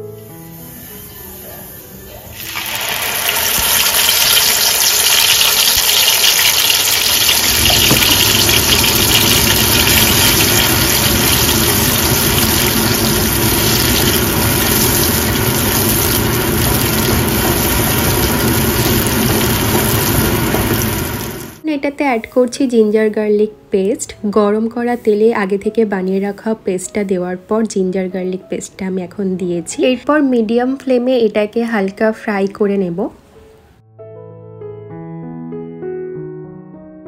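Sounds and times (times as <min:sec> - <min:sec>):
paste sizzling in hot oil: 0:00.2 - 0:21.6.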